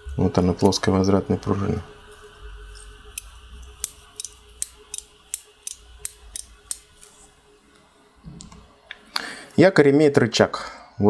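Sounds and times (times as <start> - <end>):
sharp metallic clicks: 3.2 - 6.9.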